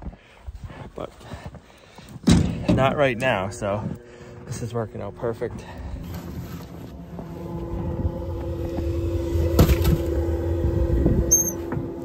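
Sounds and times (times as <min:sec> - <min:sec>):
steady hum: 0:02.4 - 0:12.0.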